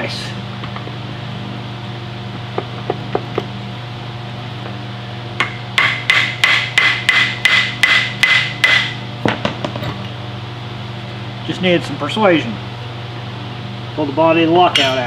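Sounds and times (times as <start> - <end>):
hammer tapping on metal: 5.4 - 9.0.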